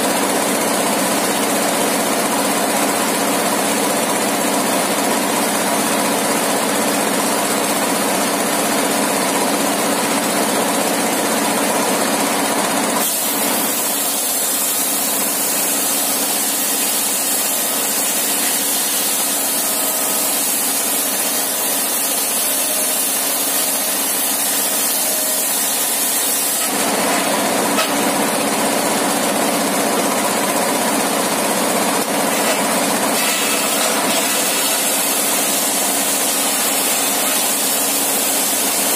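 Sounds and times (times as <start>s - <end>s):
sawmill engine droning: 0.0s - 38.9s
saw blade ripping through wood: 32.3s - 38.9s.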